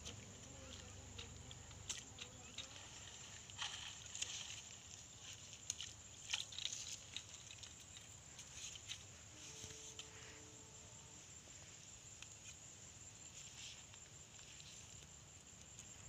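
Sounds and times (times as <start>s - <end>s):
water splashes: 0.0s - 7.6s.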